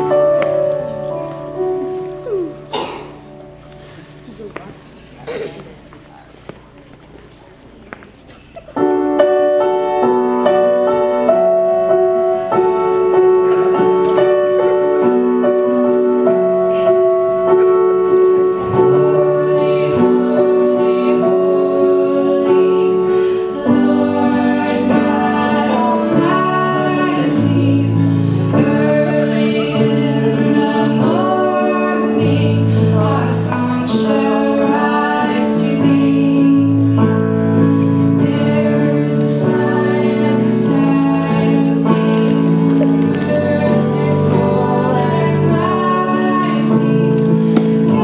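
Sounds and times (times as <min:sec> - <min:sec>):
person singing: 0:00.0 - 0:02.7, 0:18.4 - 0:48.0
keyboard playing chords and melody: 0:00.0 - 0:04.4, 0:08.7 - 0:48.0.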